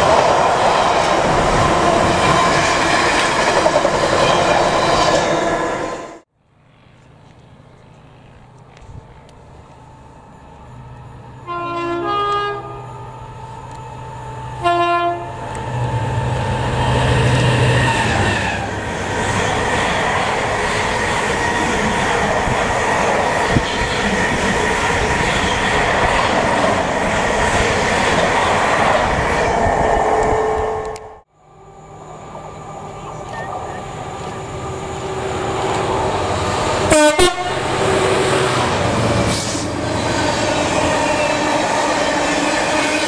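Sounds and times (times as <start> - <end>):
train wheels rolling on rails: 0.0 - 6.2, 6.8 - 31.1, 32.2 - 43.0
locomotive horn: 11.4 - 13.1, 14.6 - 15.6, 36.9 - 38.6.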